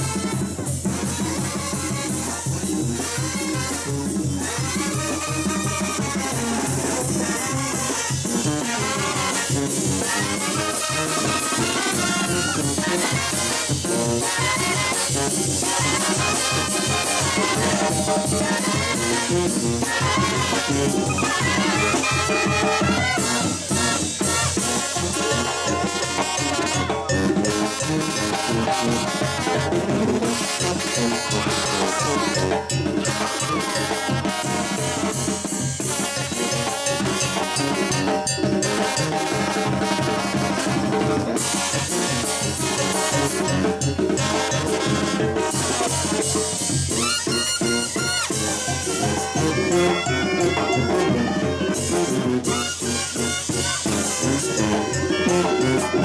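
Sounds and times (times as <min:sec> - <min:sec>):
brass band playing dance tune: 0:00.0 - 0:56.0
cymbal and snare drum: 0:00.0 - 0:56.0
bass drum beat: 0:08.4 - 0:31.7.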